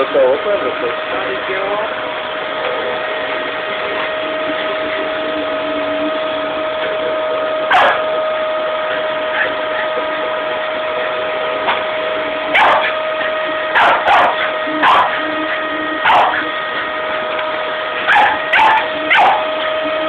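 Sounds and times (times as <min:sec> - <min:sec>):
vacuum cleaner whining: 0:00.0 - 0:20.0
small dog barking: 0:07.7 - 0:08.1, 0:12.5 - 0:13.0, 0:13.7 - 0:15.3, 0:16.0 - 0:16.5, 0:18.0 - 0:19.6.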